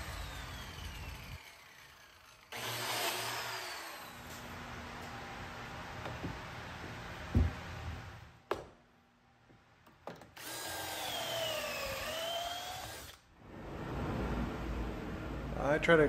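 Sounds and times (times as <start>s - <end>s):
biscuit joiner motor whine: 0.0s - 5.4s, 10.4s - 13.2s
heavy thump: 7.3s - 7.7s.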